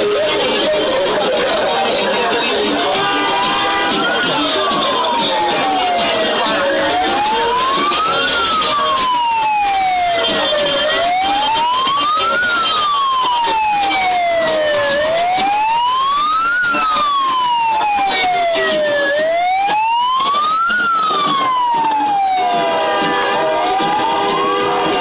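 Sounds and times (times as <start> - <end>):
siren wailing: 3.3 - 25.0.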